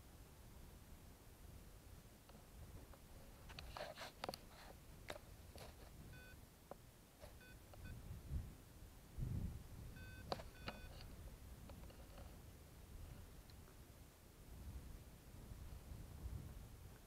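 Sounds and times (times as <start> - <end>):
short electronic beeps: 6.1 - 6.4, 7.4 - 8.0, 10.0 - 11.0
low rumbles on microphone: 9.2 - 11.7, 14.5 - 17.0.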